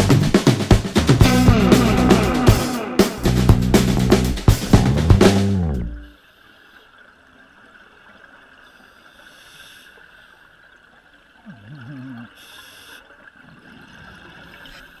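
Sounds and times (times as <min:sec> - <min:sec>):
wavering low hum: 0:01.0 - 0:06.2
underwater hiss: 0:08.7 - 0:10.3, 0:12.3 - 0:13.1.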